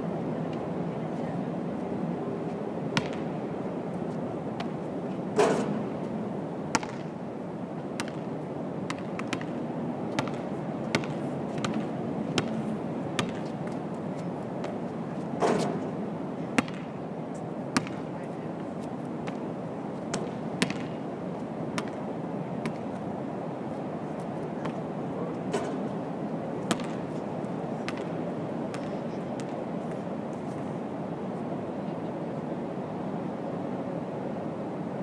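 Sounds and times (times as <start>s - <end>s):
steady background noise: 0.0s - 35.0s
ball bouncing on hard court: 3.0s - 3.3s, 6.7s - 7.1s, 8.0s - 8.3s, 8.9s - 12.6s, 13.2s - 13.5s, 16.6s - 16.9s, 17.8s - 18.1s, 20.1s - 21.0s, 21.8s - 22.0s, 22.6s - 22.8s, 26.7s - 27.1s, 27.9s - 28.1s, 28.7s - 29.6s
basketball striking the hoop: 3.0s - 3.3s, 5.4s - 5.9s, 6.7s - 7.1s, 26.7s - 27.0s.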